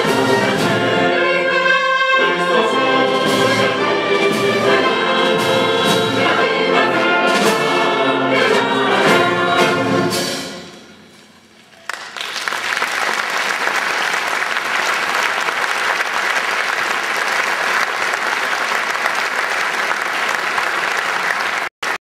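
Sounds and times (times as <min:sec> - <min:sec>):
audience applauding: 0:11.6 - 0:22.0.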